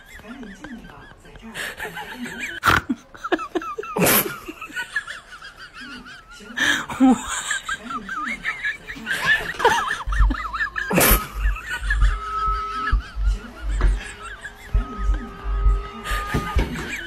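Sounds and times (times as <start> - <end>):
low rumble: 10.1 - 16.2.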